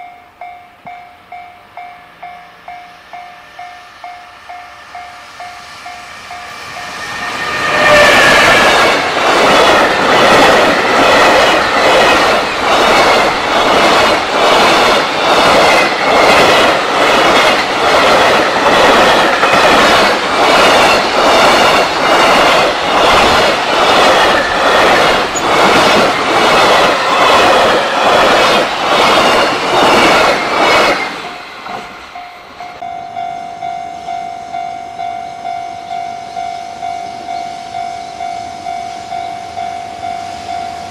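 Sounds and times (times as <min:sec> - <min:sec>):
level-crossing warning bell: 0:00.0 - 0:14.1, 0:31.1 - 0:40.9
train wheels clacking over rail joints: 0:07.0 - 0:32.8.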